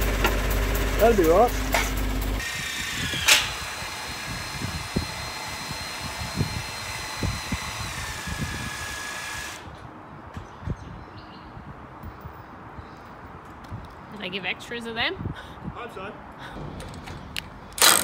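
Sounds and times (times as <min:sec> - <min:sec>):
small motor whining: 0:02.2 - 0:09.7.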